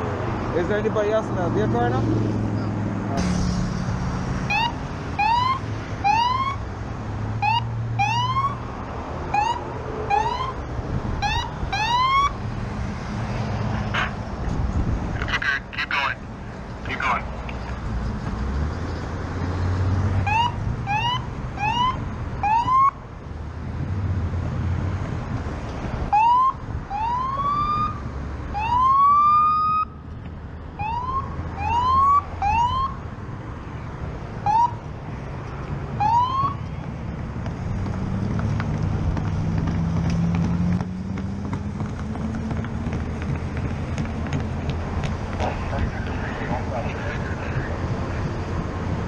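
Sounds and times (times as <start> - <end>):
wind and road rumble: 0.0 - 49.0
police siren whoops: 4.5 - 6.6, 7.4 - 8.6, 9.3 - 10.6, 11.2 - 12.4, 20.2 - 22.9, 26.1 - 29.9, 30.8 - 33.0.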